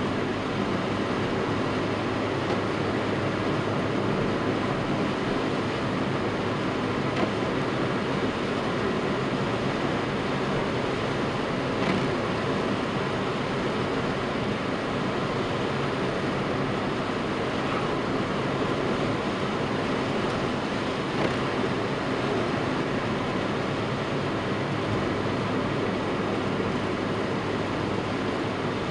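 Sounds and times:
car tyre and engine noise: 0.0s - 28.9s.

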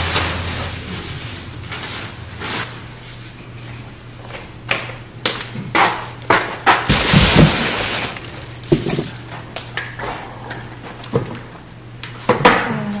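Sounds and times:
plastic bag rustling: 0.0s - 3.2s, 6.9s - 9.3s
objects set down knocking: 6.7s - 9.3s.

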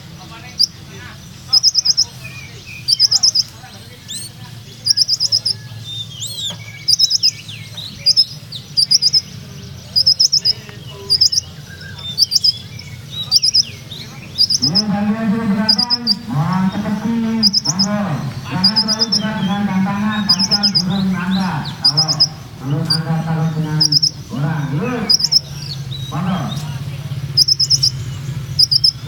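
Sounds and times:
bird chirping: 0.0s - 29.0s
gliding bird notes: 8.3s - 29.0s.

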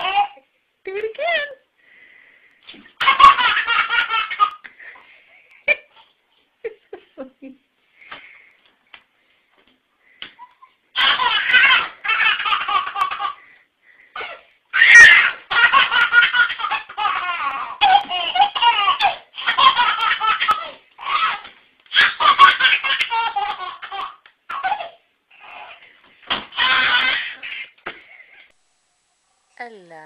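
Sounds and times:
baby belly-laughing: 0.0s - 0.4s, 2.7s - 4.7s, 10.3s - 13.4s, 14.1s - 28.5s
baby squealing: 14.7s - 15.6s, 26.5s - 27.7s.

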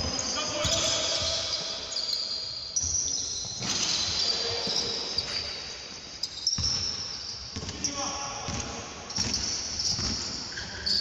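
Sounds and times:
basketball bouncing on wooden court: 0.0s - 1.8s, 6.4s - 10.5s.

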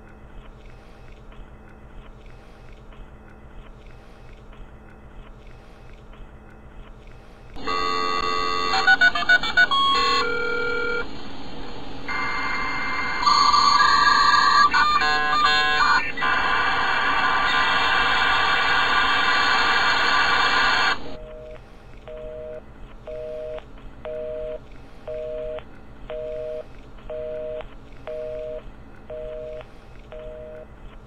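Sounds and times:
telephone busy signal: 7.6s - 11.1s, 12.1s - 16.1s, 21.2s - 30.7s
dial-up modem data hiss: 7.6s - 31.0s.

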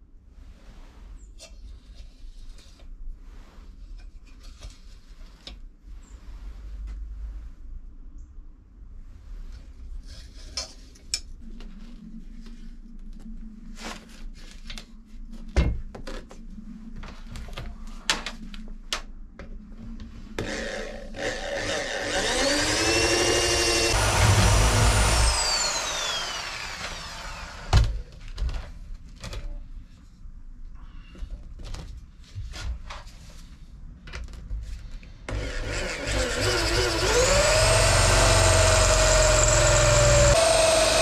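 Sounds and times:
power tool whine: 20.4s - 27.8s, 35.3s - 41.0s.

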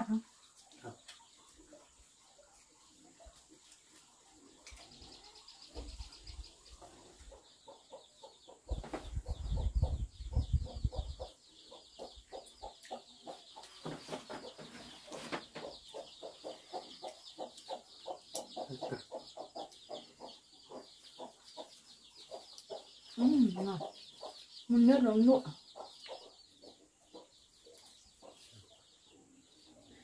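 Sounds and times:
chickens clucking: 0.0s - 30.0s.

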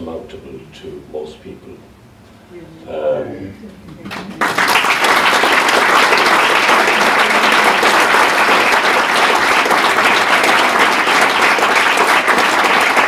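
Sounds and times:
audience clapping: 4.1s - 13.0s.

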